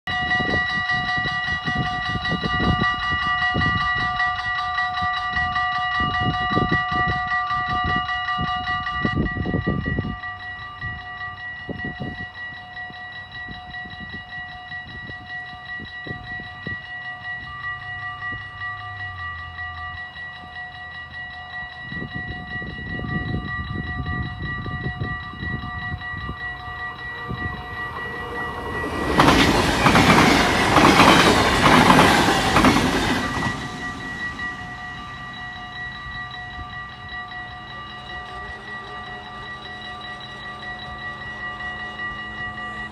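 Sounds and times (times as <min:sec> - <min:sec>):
electronic level-crossing bell: 0:00.1 - 0:42.9
passenger train rushing: 0:21.9 - 0:42.9.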